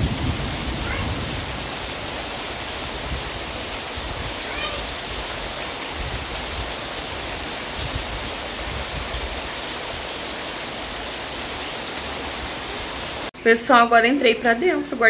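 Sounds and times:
low rumbles: 0.0 - 4.9
heavy rain pouring: 0.0 - 13.4.

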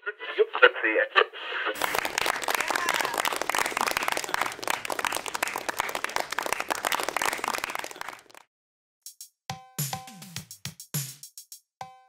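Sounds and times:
audience applause: 1.8 - 8.4.

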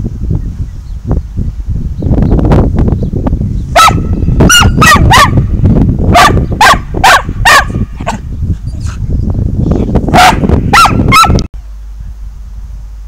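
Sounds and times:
steady low rumble: 0.0 - 13.0
dog barking: 3.8 - 5.5, 6.1 - 8.2, 10.1 - 11.5.

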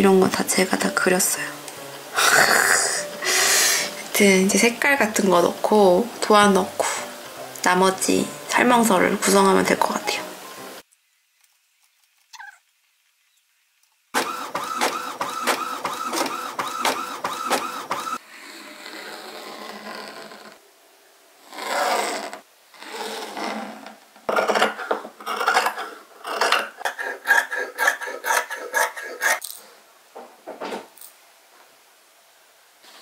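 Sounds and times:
small machine clattering: 14.2 - 18.2.

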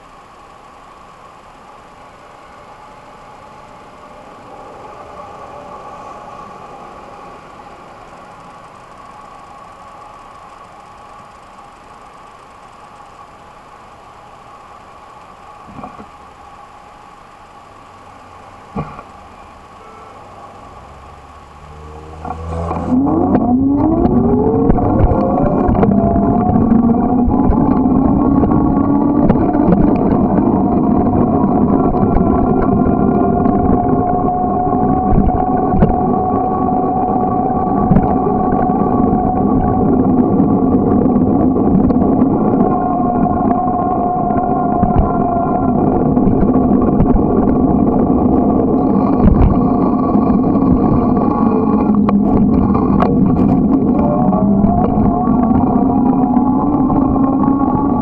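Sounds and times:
constant hum: 0.0 - 58.0
road rumble: 16.8 - 58.0
wind noise: 18.7 - 58.0.

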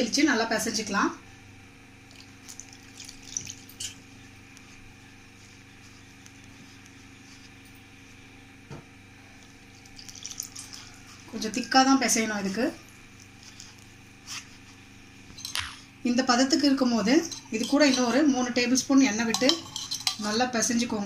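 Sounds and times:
steady low hum: 0.0 - 21.0
hand rubbing flour in bowl: 4.6 - 8.2, 10.2 - 15.2.

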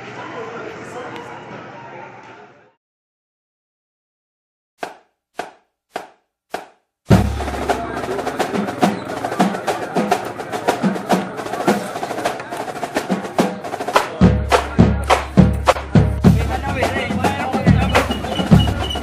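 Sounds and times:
fast snare rolls: 4.8 - 19.0
drums playing: 5.4 - 19.0.

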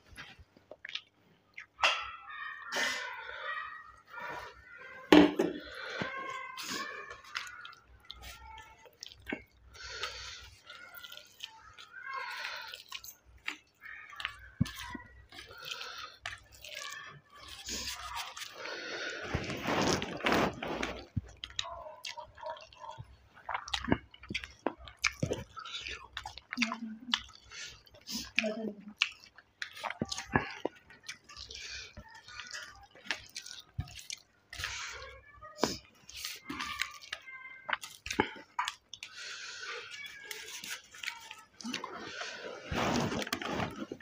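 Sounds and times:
wet squishing of food: 0.0 - 44.0
rice squished by hand: 14.2 - 21.6.

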